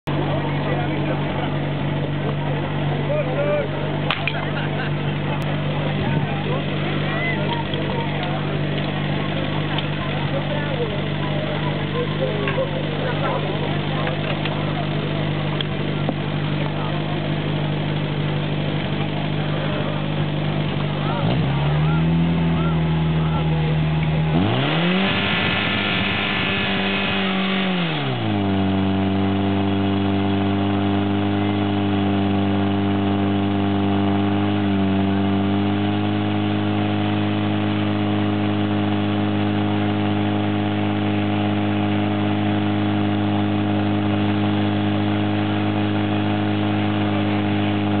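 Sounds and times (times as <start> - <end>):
pump engine revving: 0.0 - 48.0
water spraying from hoses: 24.6 - 27.7.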